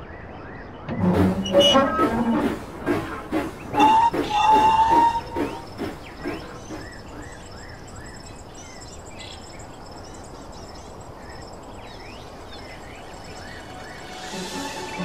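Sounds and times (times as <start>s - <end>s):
crickets trilling: 3.3s - 15.0s.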